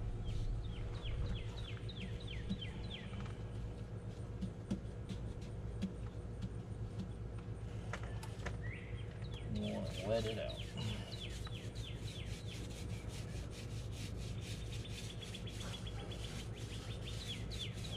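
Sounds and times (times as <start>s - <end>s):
low rumble: 0.0s - 4.4s.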